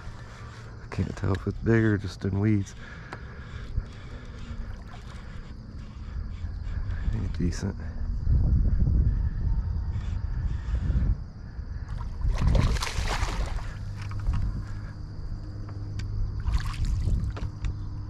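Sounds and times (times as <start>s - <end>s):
low steady hum: 0.0s - 18.0s
fish splashing at water surface: 12.0s - 14.3s, 16.4s - 17.4s.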